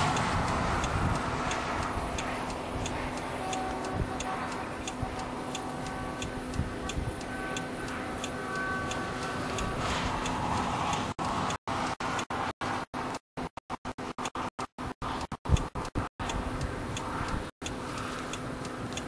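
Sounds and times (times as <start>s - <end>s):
rushing noise: 0.0s - 13.1s
car indicator ticking: 0.1s - 9.7s, 14.2s - 19.0s.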